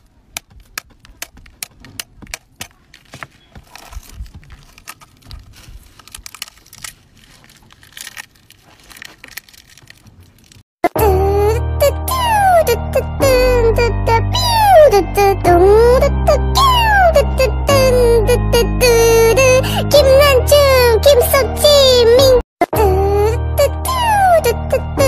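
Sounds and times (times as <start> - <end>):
eggshell crackling as peeled: 0.4 - 10.6
children's music with singing: 10.8 - 25.0.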